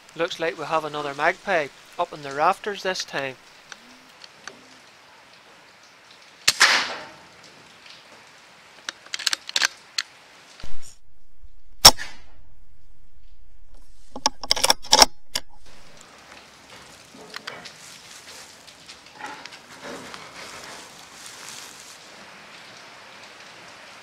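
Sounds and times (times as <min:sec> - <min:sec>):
air rifle shot: 0:06.5 - 0:07.0, 0:11.8 - 0:12.6
metallic clicks of rifle handling: 0:08.9 - 0:10.1, 0:13.7 - 0:16.0
steady low hum: 0:10.6 - 0:16.0.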